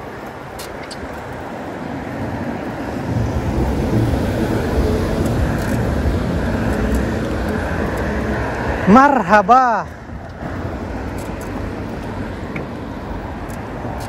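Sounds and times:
wind buffeting microphone: 0.0 - 8.9
cars on the road: 0.0 - 14.0.

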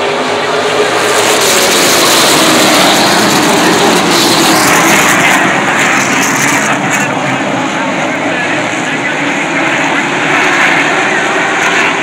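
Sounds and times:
race car engines blaring: 0.0 - 12.0.

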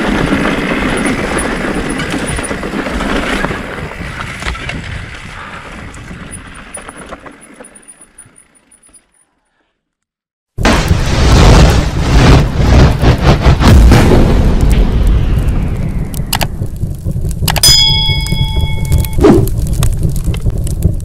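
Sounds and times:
wind rush: 0.0 - 6.7
tyres rolling over rough ground: 0.0 - 9.2.

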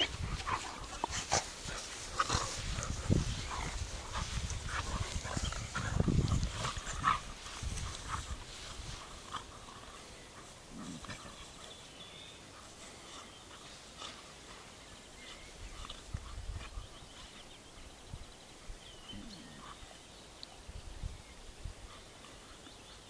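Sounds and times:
puppies growling and grunting: 10.4 - 11.6.

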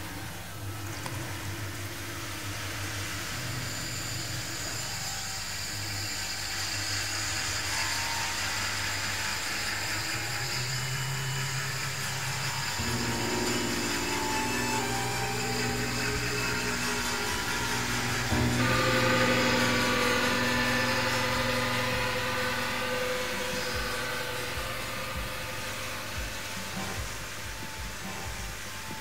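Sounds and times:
low steady hum: 7.3 - 29.0.

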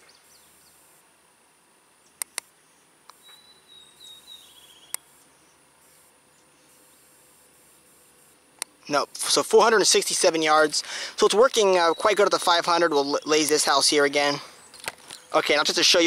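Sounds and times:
rangefinder button clicks: 2.2 - 2.5
thin high call with trill: 3.2 - 7.0.

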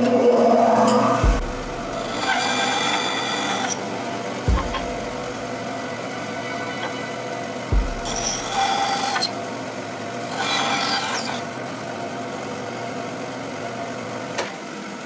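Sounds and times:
bandsaw running: 0.6 - 12.2
bandsaw cutting wood: 1.1 - 11.7.

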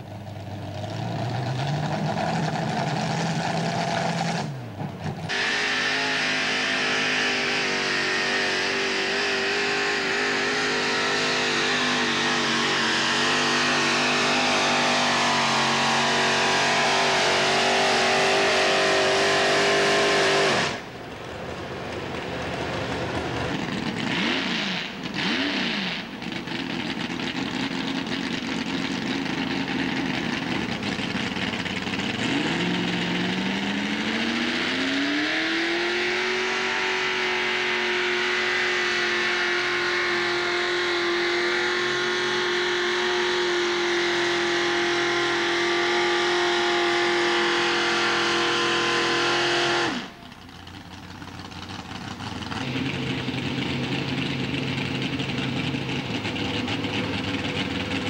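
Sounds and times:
tractor engine idling and revving: 0.0 - 58.0.

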